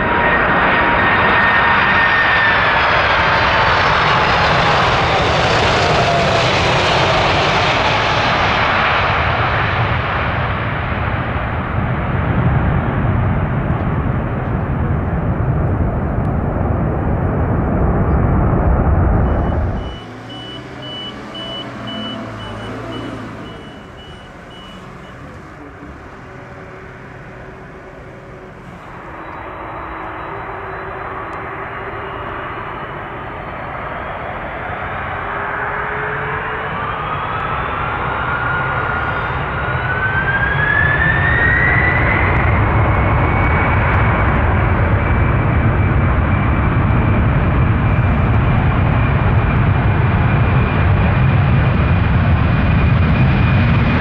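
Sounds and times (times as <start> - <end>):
jet engines deep rumble: 0.0 - 54.0
jet engines spooling up: 15.4 - 54.0
high beeps: 19.2 - 25.3, 28.7 - 33.0.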